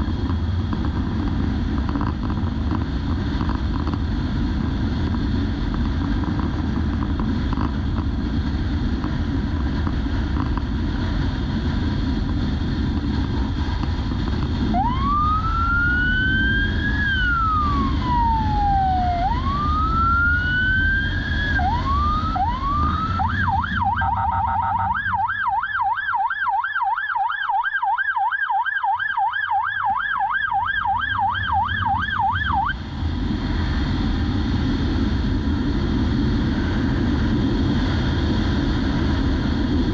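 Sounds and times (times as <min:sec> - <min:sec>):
motorcycle road rumble and wind: 0:00.0 - 0:39.9
police siren wailing and yelping: 0:14.7 - 0:32.8.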